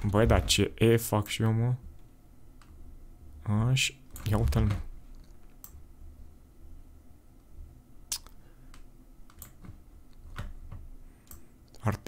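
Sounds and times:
faint low hum: 0:00.0 - 0:12.0.

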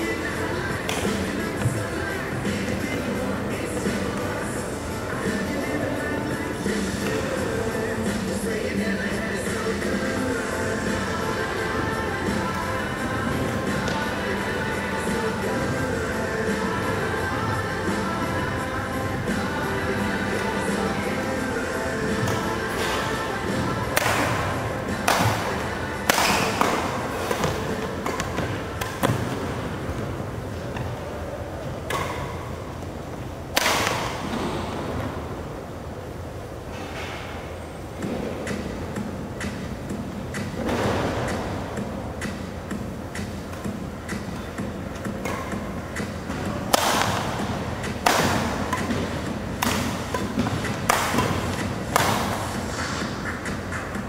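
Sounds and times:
rackets striking shuttlecock: 0:25.0 - 0:29.4, 0:31.8 - 0:32.5, 0:33.5 - 0:34.4, 0:43.2 - 0:52.8.

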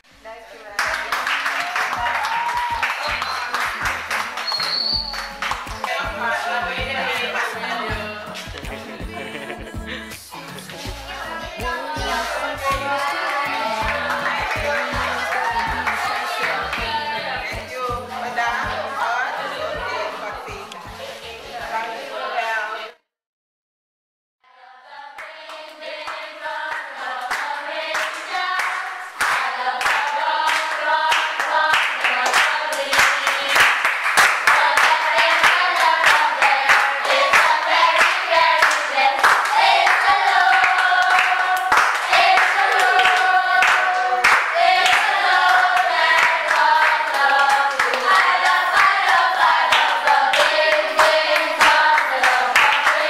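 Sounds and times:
handclaps: 0:00.8 - 0:06.1, 0:08.3 - 0:08.8, 0:27.3 - 0:53.0
group singing: 0:03.0 - 0:23.0, 0:24.5 - 0:53.0.

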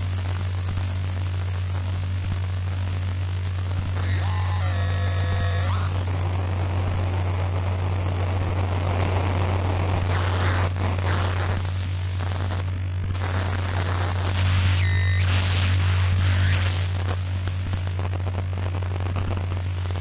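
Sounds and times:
hiss and static: 0:00.0 - 0:20.0
low synthesizer drone: 0:04.0 - 0:06.5.

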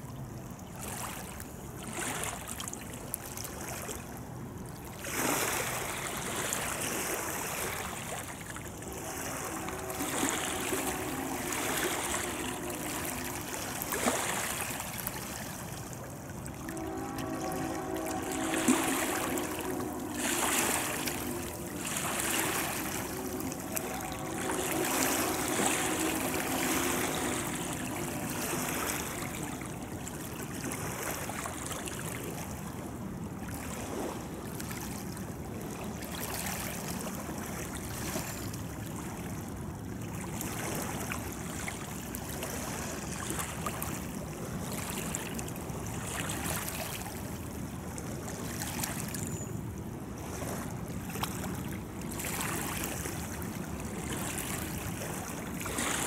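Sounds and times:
water lapping: 0:00.0 - 0:56.0
wind: 0:00.0 - 0:56.0
distant freight train rumbling: 0:04.9 - 0:34.2
faint held tones: 0:08.8 - 0:15.2, 0:16.4 - 0:30.5.

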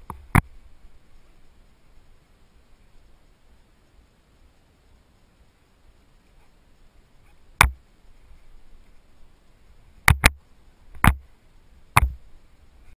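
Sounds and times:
sharp knocks on camera: 0:10.1 - 0:10.4, 0:12.0 - 0:12.2.

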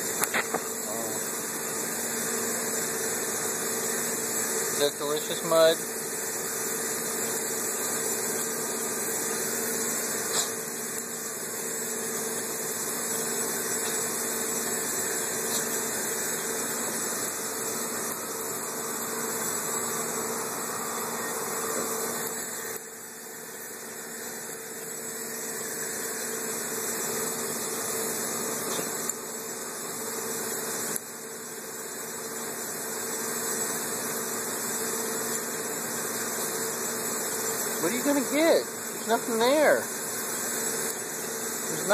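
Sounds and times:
mechanical hum: 0:00.0 - 0:41.9
constant hiss: 0:04.5 - 0:05.8, 0:33.2 - 0:41.9.

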